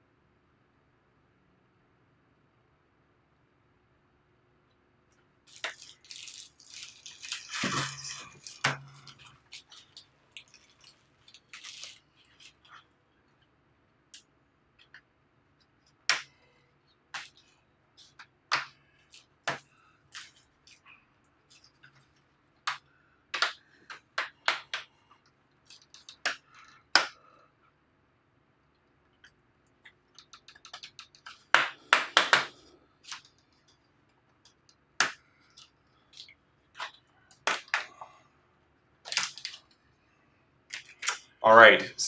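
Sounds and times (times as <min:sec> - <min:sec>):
plastic clips cracking loose: 0:39.1 - 0:39.6.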